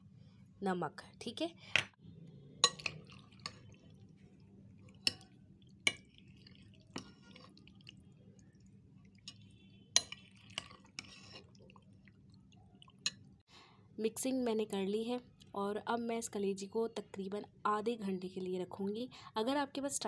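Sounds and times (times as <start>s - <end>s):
soft wet squishing: 2.3s - 13.4s.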